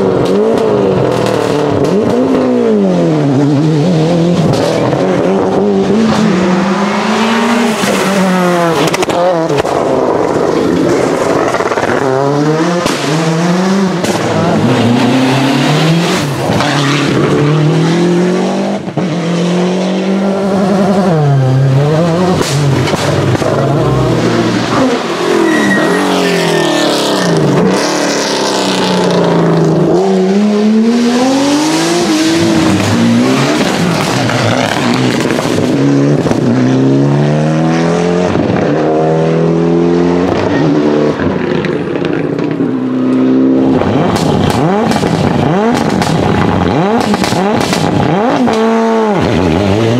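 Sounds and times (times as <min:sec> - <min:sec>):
exhaust backfires and pops: 0:00.0 - 0:02.6, 0:04.4 - 0:06.3, 0:08.6 - 0:14.6, 0:22.2 - 0:25.0, 0:32.3 - 0:36.5, 0:41.1 - 0:49.9
rally car engines at full throttle: 0:00.0 - 0:49.9.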